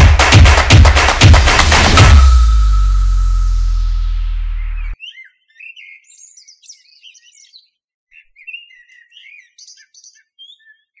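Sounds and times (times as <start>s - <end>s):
bird chirping and whistling: 4.6s - 11.0s.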